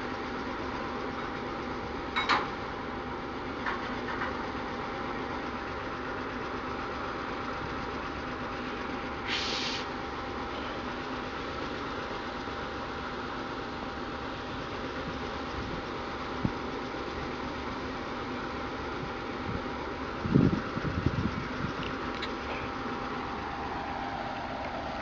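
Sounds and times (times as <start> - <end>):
diesel locomotive engine idling: 0.0 - 25.0
short hiss: 9.2 - 9.9.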